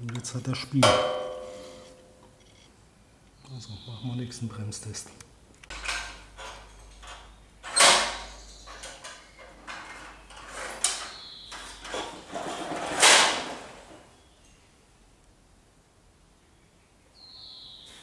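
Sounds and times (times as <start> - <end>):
tractor rattling and scraping on tiles: 5.7 - 14.0.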